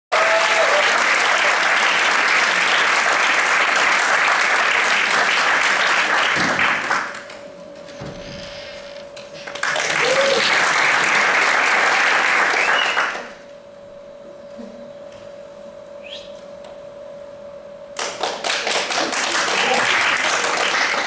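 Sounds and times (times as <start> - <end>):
audience applauding: 0.1 - 7.3, 9.4 - 13.4, 18.0 - 21.0.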